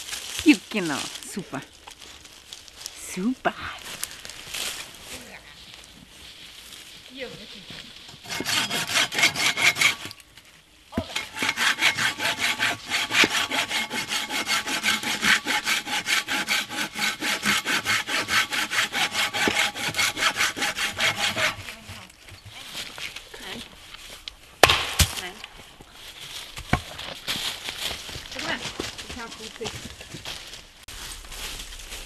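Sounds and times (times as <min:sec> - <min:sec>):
hand saw cutting log: 0:08.1 - 0:10.2, 0:11.0 - 0:22.1.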